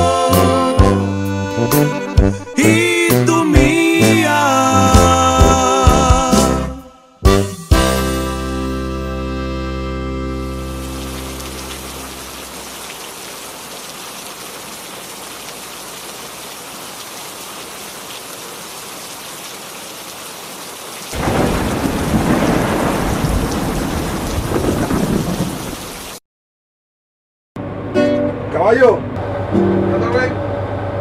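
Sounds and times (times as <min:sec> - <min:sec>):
steady rain falling: 0:10.6 - 0:26.2
rolling thunder clap: 0:21.2 - 0:26.0.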